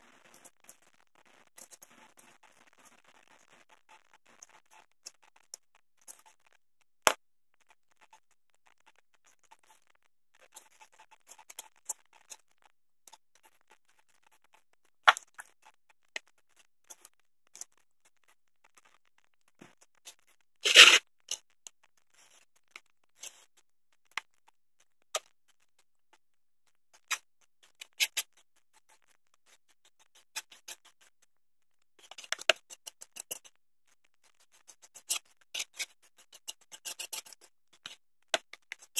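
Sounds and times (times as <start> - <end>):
stick scraping plastic lid: 20.6 - 21.0.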